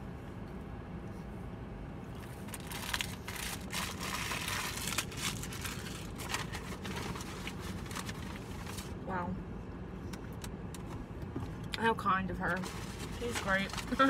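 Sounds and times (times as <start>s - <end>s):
steady low hum: 0.0s - 14.0s
food packaging crinkling: 2.2s - 9.0s.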